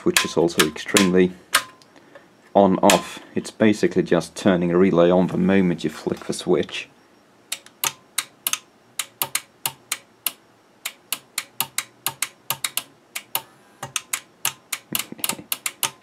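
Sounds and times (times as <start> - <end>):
rocker switch and relay clicking: 0.0 - 1.9, 2.8 - 3.2, 7.5 - 16.0.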